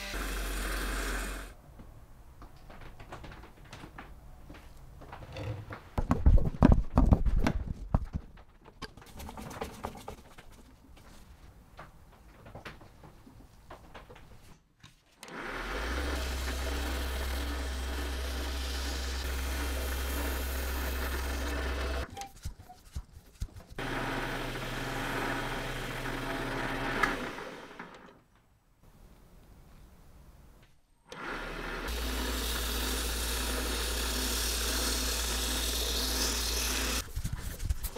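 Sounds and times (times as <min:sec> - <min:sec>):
bench lathe humming: 0:00.0 - 0:01.6, 0:15.3 - 0:22.1, 0:23.8 - 0:28.1, 0:31.2 - 0:37.0.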